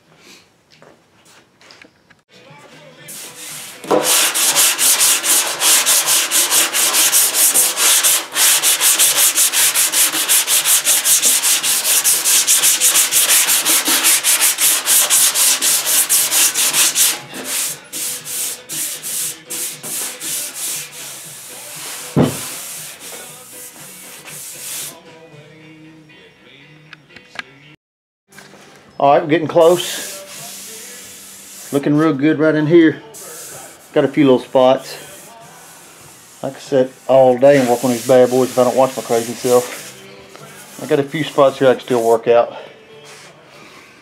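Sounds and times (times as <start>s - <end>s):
sanding block rubbing on metal: 3.1s - 25.0s, 29.6s - 32.0s, 33.2s - 34.3s, 34.9s - 42.2s
knock: 22.2s - 22.5s.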